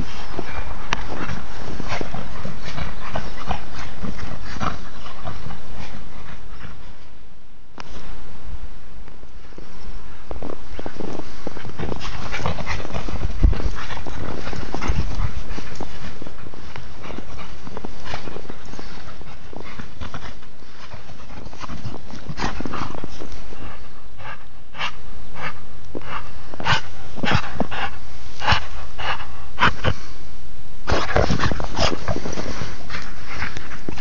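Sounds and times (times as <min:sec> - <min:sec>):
dog huffing and vocalizing: 0:11.5 - 0:23.2.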